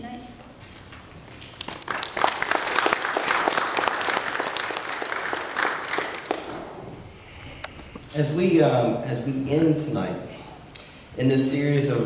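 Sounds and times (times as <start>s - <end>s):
congregation applauding: 1.5s - 6.8s.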